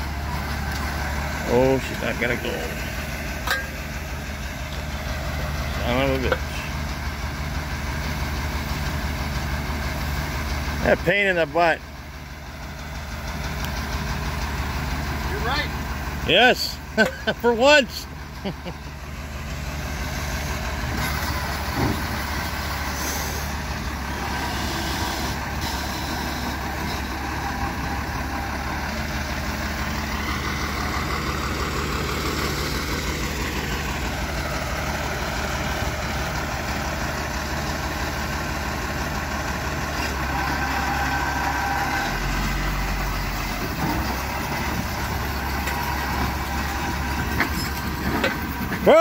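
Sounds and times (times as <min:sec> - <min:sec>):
truck engine running: 0:00.0 - 0:49.0
winch whining: 0:40.0 - 0:43.0.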